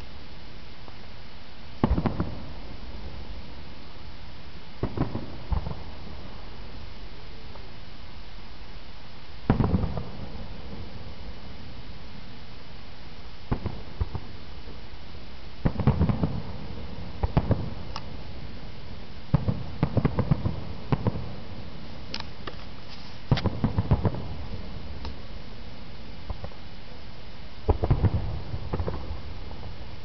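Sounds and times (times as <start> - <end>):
steady background hiss: 0.0 - 30.0
fireworks cracking and popping: 1.8 - 3.2, 4.8 - 6.5, 9.4 - 11.2, 13.5 - 14.9, 15.6 - 18.6, 19.3 - 25.3, 26.2 - 26.6, 27.6 - 29.8.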